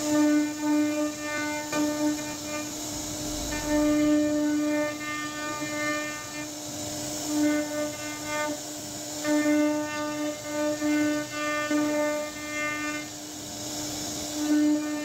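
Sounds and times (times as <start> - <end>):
router spindle whining: 2.0 - 6.4.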